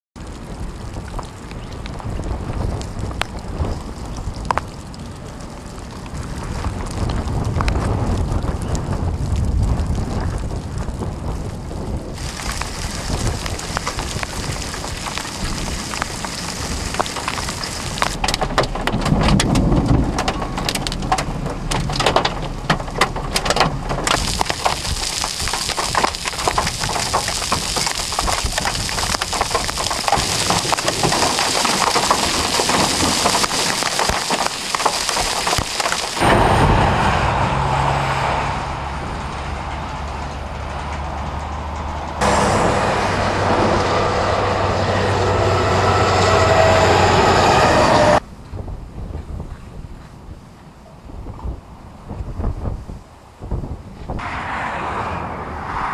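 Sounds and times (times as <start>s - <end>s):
hailstones rattling: 0.2s - 36.7s
rain hissing: 0.2s - 39.3s, 42.2s - 48.2s
wind on microphone: 0.2s - 55.9s.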